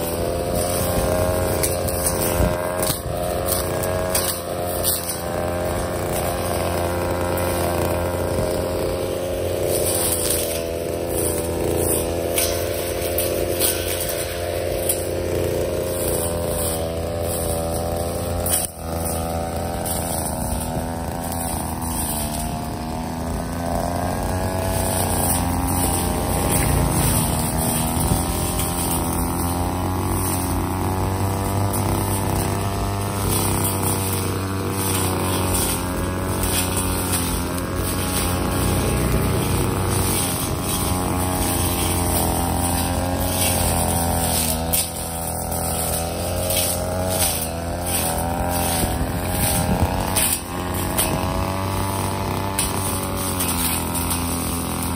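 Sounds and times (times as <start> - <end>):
brush cutter engine running: 0.0 - 54.9
cutting head swishing through grass: 0.0 - 54.9.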